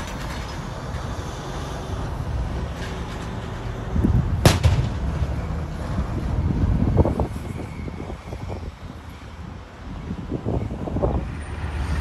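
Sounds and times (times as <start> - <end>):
truck engine low rumble: 0.0 - 12.0
sharp bang: 4.4 - 5.1.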